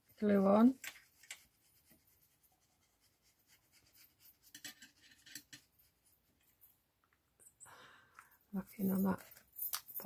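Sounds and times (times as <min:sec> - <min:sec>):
glue nozzle scratching on paper: 0:00.3 - 0:06.1.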